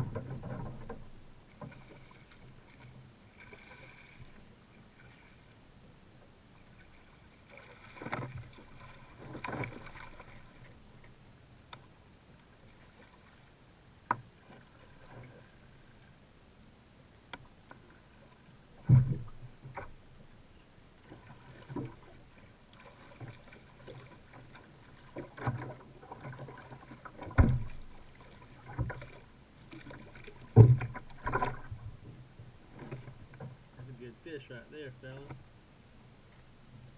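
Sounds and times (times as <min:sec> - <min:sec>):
fish thrashing and splashing: 0:07.5 - 0:10.6
knocks on kayak hull: 0:27.3 - 0:27.8, 0:30.6 - 0:31.6.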